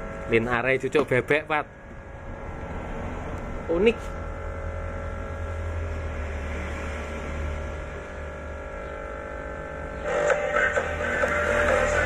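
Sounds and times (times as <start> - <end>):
low mains hum from speakers: 0.0 - 2.7, 7.7 - 12.0.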